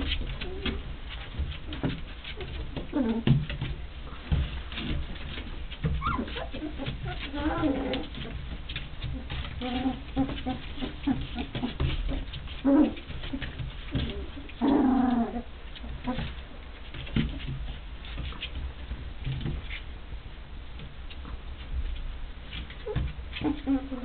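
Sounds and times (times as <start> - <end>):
puppies barking and growling: 0.0 - 17.4, 22.7 - 24.0
puppy crying: 6.0 - 8.2.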